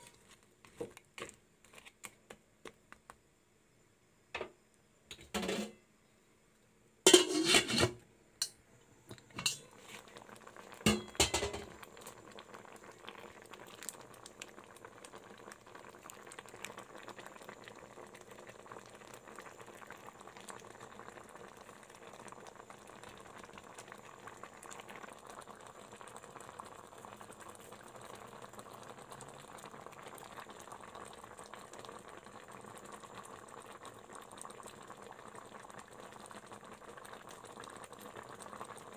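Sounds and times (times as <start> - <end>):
liquid bubbling in a pan: 0.0 - 3.2, 7.0 - 38.9
cookware clattering: 5.1 - 5.8, 7.1 - 8.6, 9.3 - 9.7, 10.9 - 11.8.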